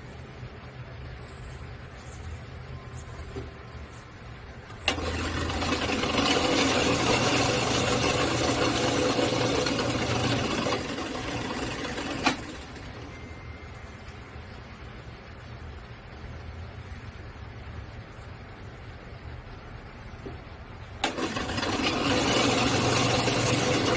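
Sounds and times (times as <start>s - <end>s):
drill press boring wood: 4.7s - 13.1s, 21.0s - 23.9s.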